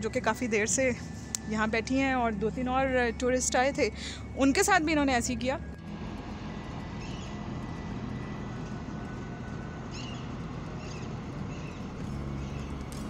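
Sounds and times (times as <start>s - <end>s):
low engine drone: 0.0s - 13.0s
outdoor background hum: 0.0s - 13.0s
small birds chirping: 6.9s - 7.4s, 9.8s - 13.0s.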